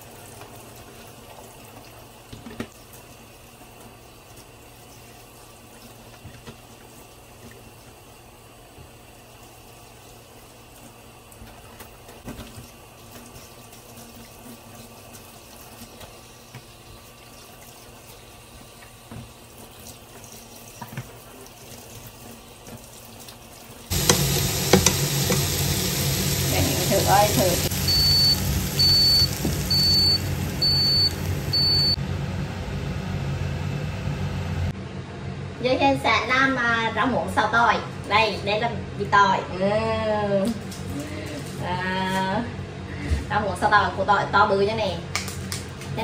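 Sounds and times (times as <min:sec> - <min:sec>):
tap water running into sink: 0:10.8 - 0:31.0
food sizzling in a pan: 0:23.9 - 0:32.0.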